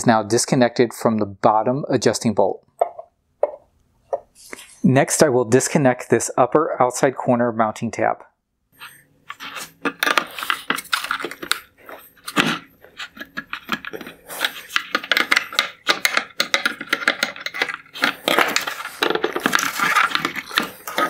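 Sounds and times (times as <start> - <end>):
metal tool on hard plastic: 8.8 - 21.0.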